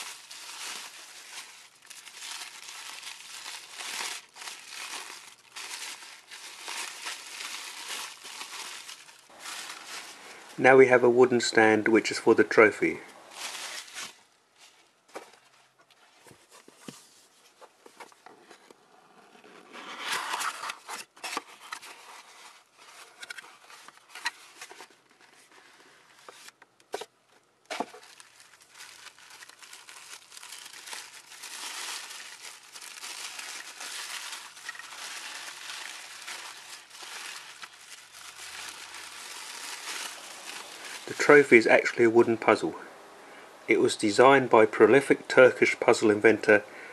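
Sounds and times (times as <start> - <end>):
tissue paper crinkling: 0.0 - 11.1, 13.2 - 17.2, 19.9 - 26.6, 27.7 - 42.0.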